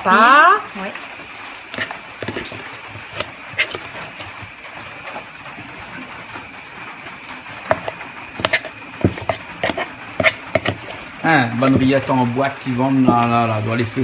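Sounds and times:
utensil clicking on dish: 7.7s - 11.0s.

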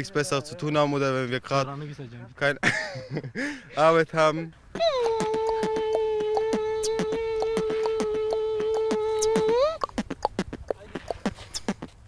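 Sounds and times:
person beatboxing: 4.8s - 12.0s
quick mouth clicks: 4.8s - 12.0s.

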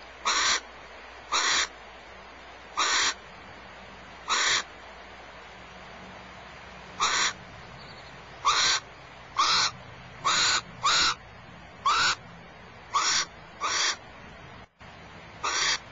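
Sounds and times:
owl screeching: 0.2s - 0.6s, 1.3s - 1.7s, 2.8s - 3.2s, 4.3s - 4.7s, 7.0s - 7.4s, 8.4s - 8.8s, 9.4s - 11.2s, 11.8s - 12.2s, 12.9s - 14.0s, 15.4s - 15.8s.

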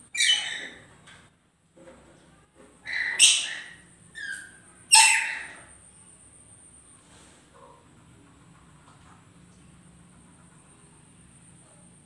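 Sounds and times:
parrots screeching: 0.1s - 0.9s, 2.8s - 5.7s.

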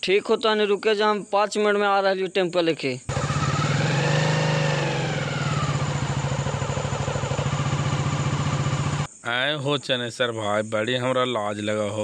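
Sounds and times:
motorcycle engine running: 3.1s - 9.1s.

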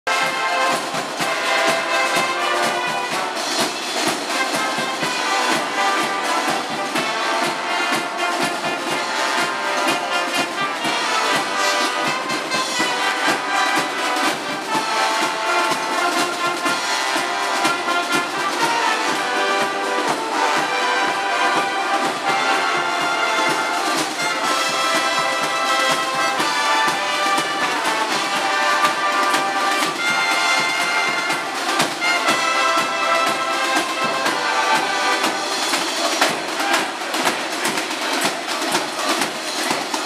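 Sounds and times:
brass band playing: 0.0s - 40.0s.

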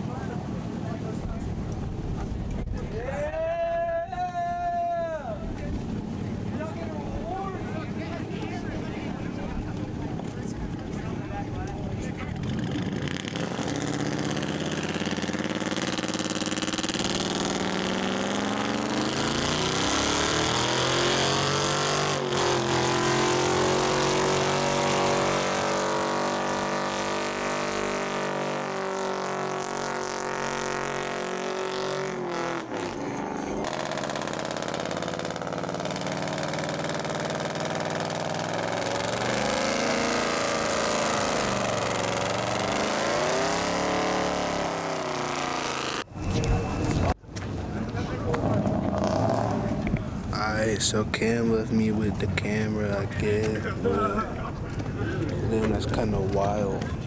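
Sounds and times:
suv engine revving: 12.2s - 47.2s, 48.2s - 56.4s
pickup truck engine revving: 12.3s - 46.1s.

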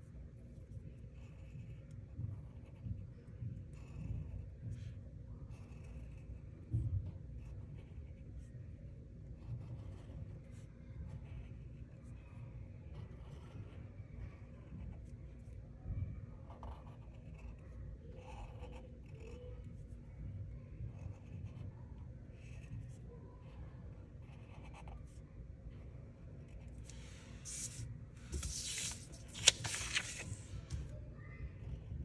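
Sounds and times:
marker drawing on paper: 0.1s - 8.7s, 9.3s - 15.6s, 16.4s - 19.9s, 20.9s - 23.6s, 26.4s - 30.4s
paper sliding on a table: 26.9s - 30.7s.

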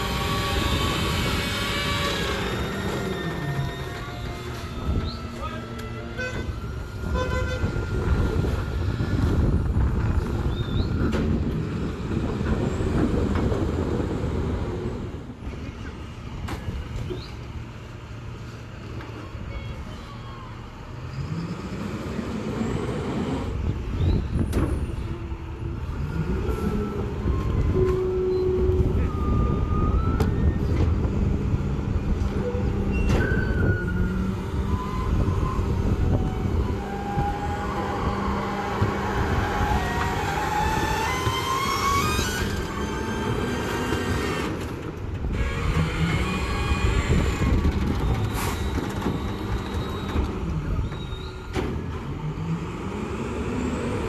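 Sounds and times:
diesel engine revving: 21.0s - 32.9s, 33.6s - 54.0s
hydraulic whine: 32.2s - 44.7s.

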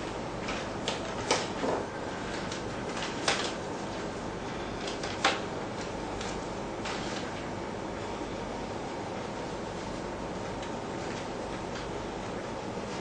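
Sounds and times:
cards shuffling: 0.4s - 3.6s.

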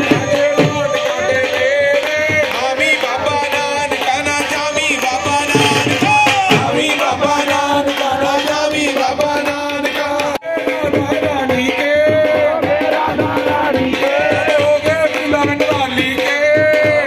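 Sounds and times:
person singing: 0.0s - 17.0s
steady percussion: 0.0s - 17.0s.

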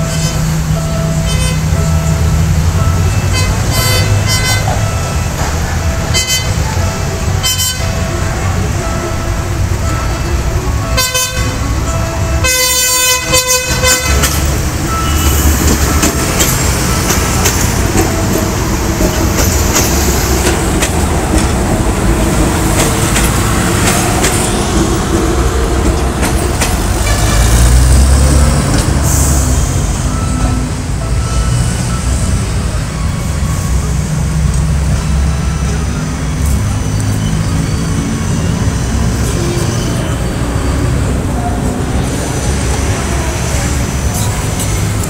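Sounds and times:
train running rumble: 0.0s - 45.0s
train horn blast: 1.2s - 1.8s, 3.1s - 4.9s, 6.1s - 6.8s, 7.4s - 8.5s, 10.8s - 15.5s, 27.0s - 27.9s.

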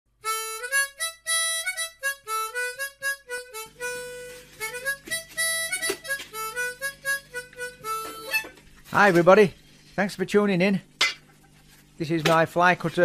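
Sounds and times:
melody of short notes: 0.2s - 8.5s
low held accompaniment: 0.2s - 8.6s.

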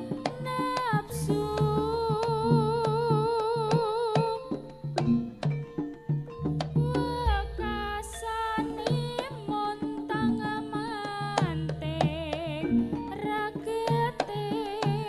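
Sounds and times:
hand drum strokes: 0.0s - 15.0s
barrel drum booms: 6.8s - 9.2s
person singing with vibrato: 6.8s - 15.0s.

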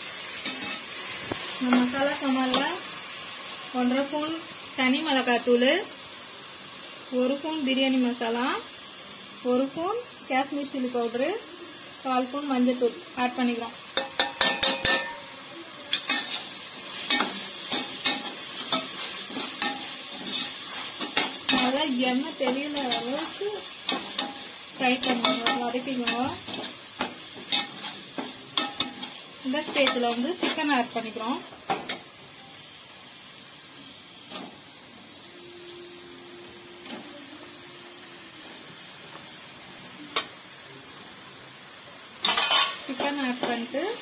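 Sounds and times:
masala sizzling in oil: 0.0s - 44.0s
metal ladle clinking on steel plate: 14.0s - 15.2s.

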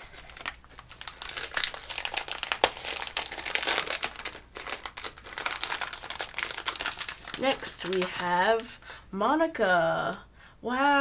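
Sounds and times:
foil bag crinkling: 0.0s - 8.8s.

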